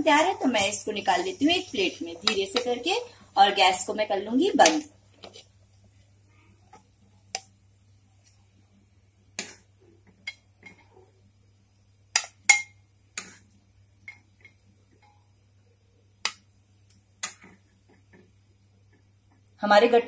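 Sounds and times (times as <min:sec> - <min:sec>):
spoon clinking against metal pot: 0:12.2 - 0:12.8.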